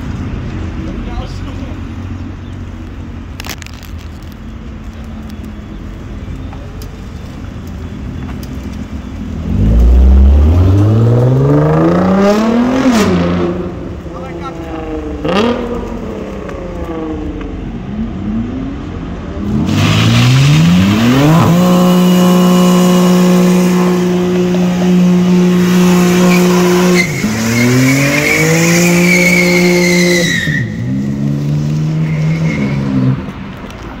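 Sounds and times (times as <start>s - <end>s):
car engine revving: 9.2s - 33.8s.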